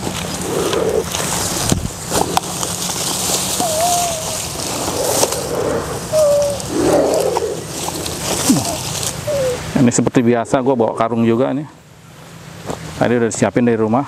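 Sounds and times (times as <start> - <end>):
rustle of grass and cloth sack: 0.0 - 9.6
snake growling hisses: 0.3 - 1.6, 3.1 - 9.6.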